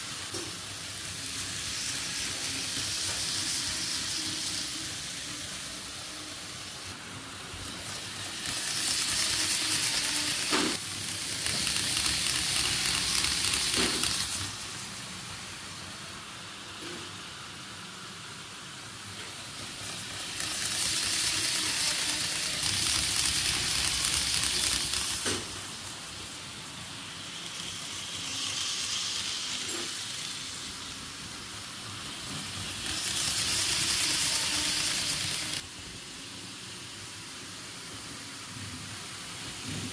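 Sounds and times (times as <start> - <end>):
model train wheels rattling: 7.6 - 14.6, 19.4 - 35.6.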